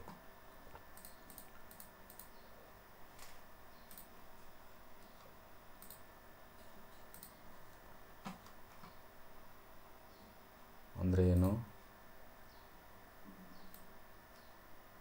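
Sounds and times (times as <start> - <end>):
faint room hiss: 0.0 - 15.0
soft clicks: 0.7 - 2.4, 3.2 - 4.1, 5.0 - 6.1, 7.0 - 9.0, 11.3 - 11.6, 13.6 - 14.5.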